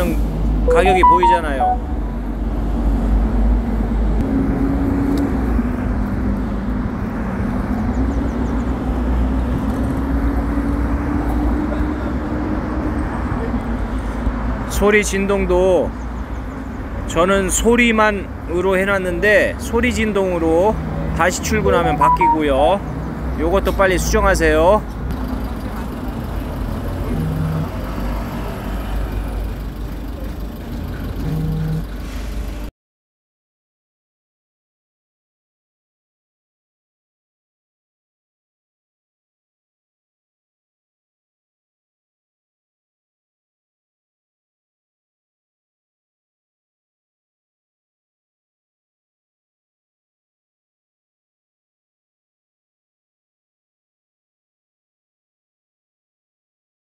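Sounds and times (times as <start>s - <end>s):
road traffic rumble: 0.0s - 32.7s
vehicle engine hum: 1.8s - 14.7s, 19.1s - 32.7s.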